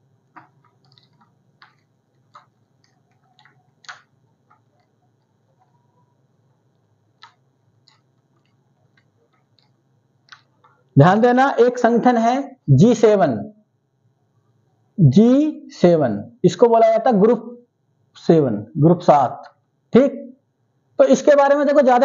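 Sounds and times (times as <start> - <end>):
hand squeaking on whiteboard: 0.4 - 6.2, 7.2 - 10.9.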